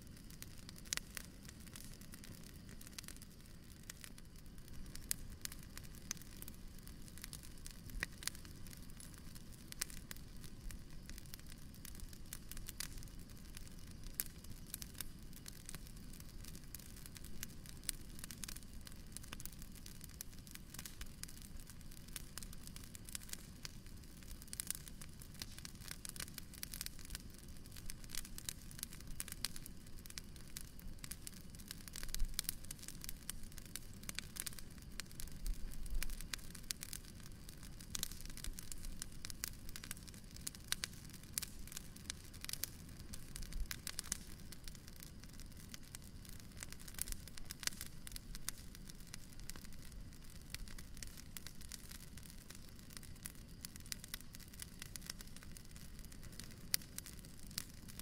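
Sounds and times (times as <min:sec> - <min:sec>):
bonfire crackling and popping: 0:00.0 - 0:58.0
low hiss of burning: 0:00.0 - 0:58.0.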